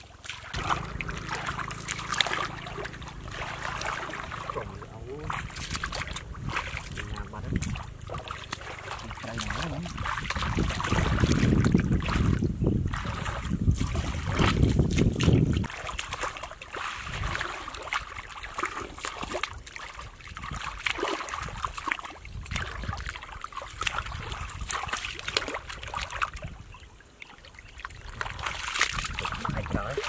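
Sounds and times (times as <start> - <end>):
hands sloshing in muddy water: 0.0 - 30.0
low rumble: 0.5 - 12.6.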